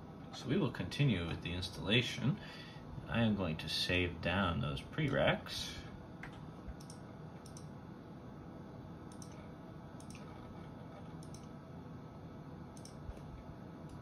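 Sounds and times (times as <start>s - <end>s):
faint steady hum: 0.0s - 14.0s
computer mouse clicks: 6.2s - 7.7s, 9.1s - 11.6s, 12.8s - 14.0s.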